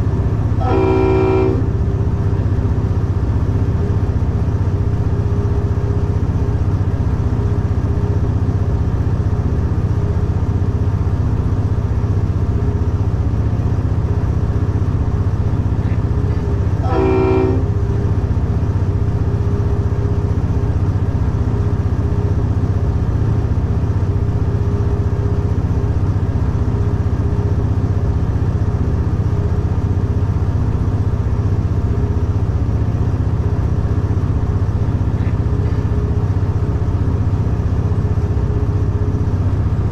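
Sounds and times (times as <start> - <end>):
diesel locomotive engine drone: 0.0 - 39.9
locomotive horn blast: 0.6 - 2.0, 15.8 - 18.1.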